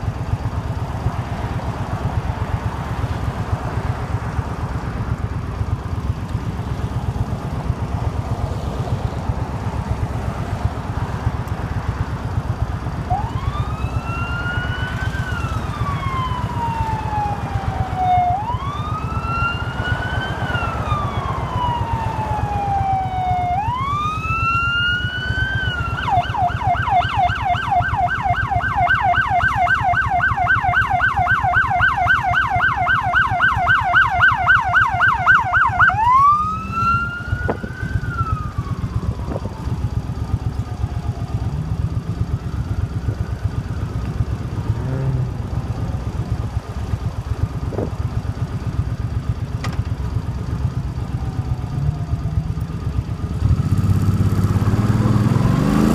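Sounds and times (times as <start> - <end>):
motorcycle engine idling: 0.0 - 19.8, 37.1 - 53.4
emergency siren wailing: 0.0 - 55.9.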